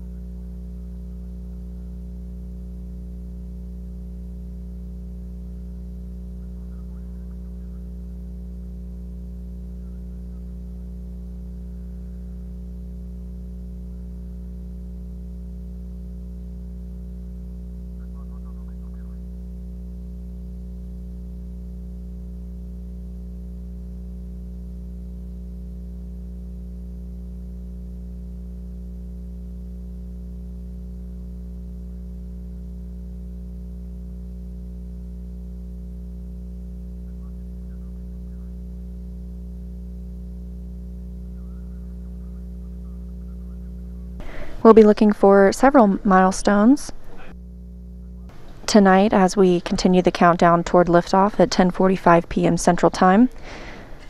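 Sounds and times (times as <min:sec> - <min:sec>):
low electrical hum: 0:00.0 - 0:54.0.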